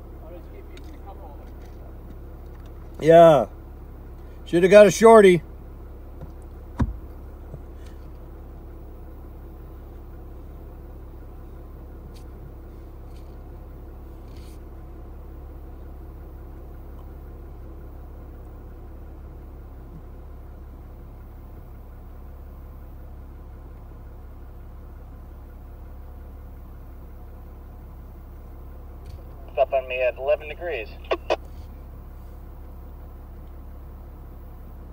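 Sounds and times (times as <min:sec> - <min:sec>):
vehicle engine idling: 0:00.0 - 0:34.9
sharp thump: 0:06.7 - 0:07.1.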